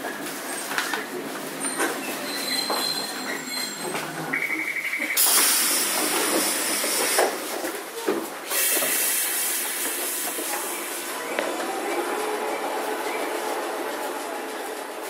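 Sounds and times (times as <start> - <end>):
compressed air hissing: 5.2 - 7.4, 8.5 - 10.4.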